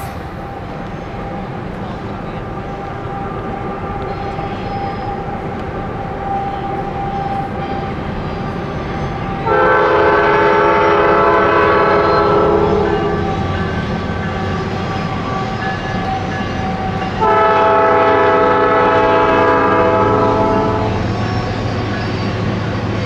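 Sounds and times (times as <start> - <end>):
diesel locomotive rumble: 0.0 - 23.0
locomotive air horn: 9.3 - 13.5, 17.2 - 21.8.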